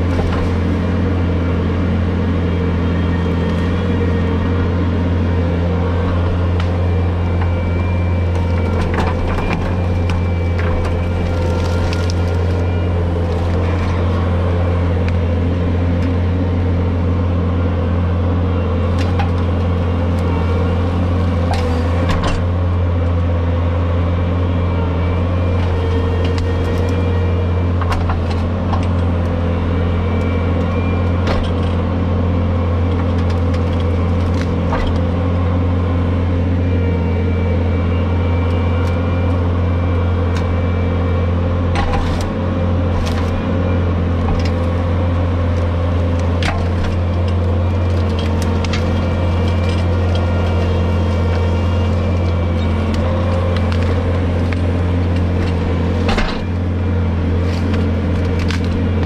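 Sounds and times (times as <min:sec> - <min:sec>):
brush cutter machine drone: 0:00.0 - 0:59.0
brush cracking and snapping: 0:08.3 - 0:16.2, 0:43.0 - 0:59.0.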